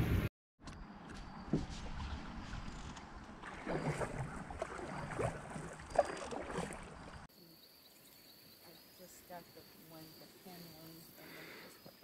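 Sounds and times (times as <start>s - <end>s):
paddles splashing in water: 1.4s - 7.3s.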